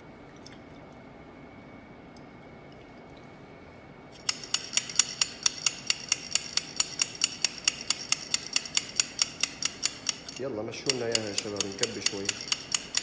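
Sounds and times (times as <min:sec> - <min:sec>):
metal stirrer clinking in cup: 0:04.3 - 0:13.0.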